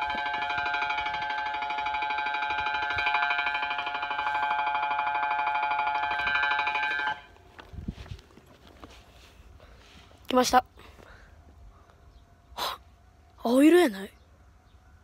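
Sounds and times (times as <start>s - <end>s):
electronic warning chime: 0.0s - 7.3s.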